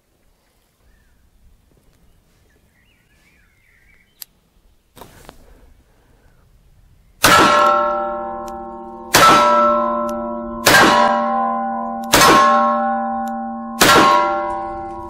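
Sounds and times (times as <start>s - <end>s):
steel plate target ringing: 7.2s - 15.0s.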